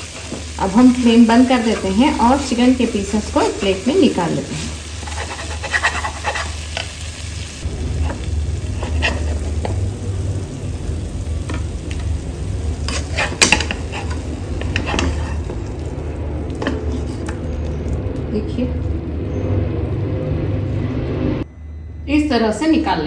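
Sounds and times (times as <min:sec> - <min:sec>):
spatulas scraping a pan: 0:00.0 - 0:07.0, 0:08.0 - 0:09.8, 0:12.8 - 0:15.8, 0:16.5 - 0:17.4
masala sizzling in pan: 0:00.0 - 0:20.8.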